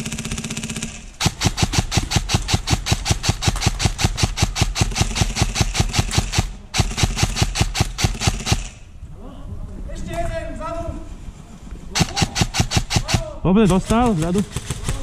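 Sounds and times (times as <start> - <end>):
airsoft gun firing: 0.0 - 8.8, 12.0 - 15.0.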